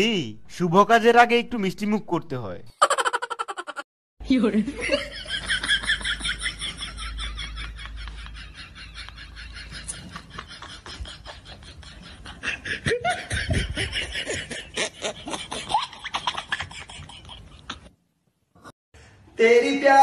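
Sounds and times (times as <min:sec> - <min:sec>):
person laughing: 0:02.8 - 0:03.8, 0:04.9 - 0:17.9.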